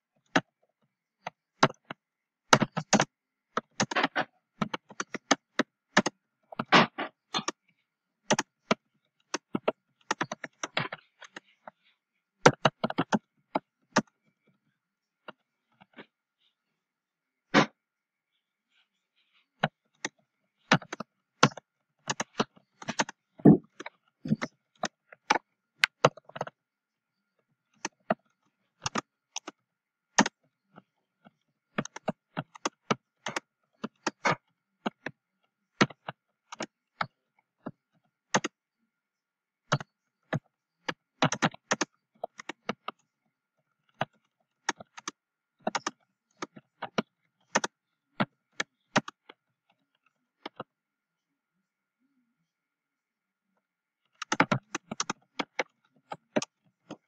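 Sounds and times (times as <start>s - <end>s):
typing on computer keyboard: 1.2s - 7.6s, 8.3s - 11.4s, 12.4s - 14.1s, 20.0s - 26.6s, 27.8s - 30.4s, 31.7s - 35.2s, 35.8s - 37.2s, 38.3s - 38.6s, 39.7s - 43.0s, 43.9s - 49.4s, 54.2s - 57.0s.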